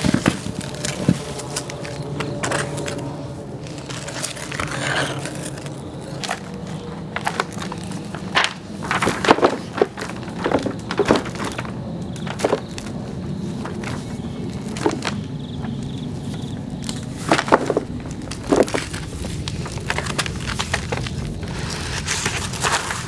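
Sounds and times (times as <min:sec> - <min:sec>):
foil crinkling: 0:00.0 - 0:23.0.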